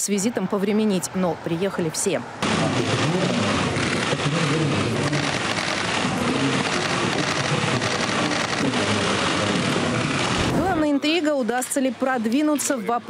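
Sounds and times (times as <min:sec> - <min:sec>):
low murmuring voices: 0:02.4 - 0:13.0
camera shutters clicking: 0:05.0 - 0:08.8.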